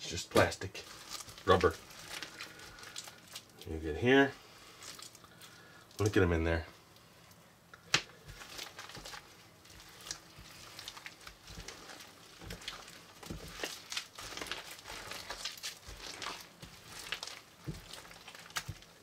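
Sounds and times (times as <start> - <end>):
small crackles and clicks: 0.3 - 3.8, 4.7 - 6.2, 7.0 - 19.0
slime squishing: 0.3 - 6.1, 7.8 - 19.0.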